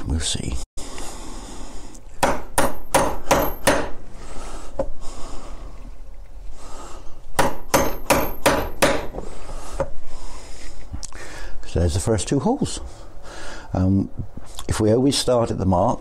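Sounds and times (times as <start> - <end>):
hammer striking metal punch: 2.2 - 4.0, 7.4 - 9.2.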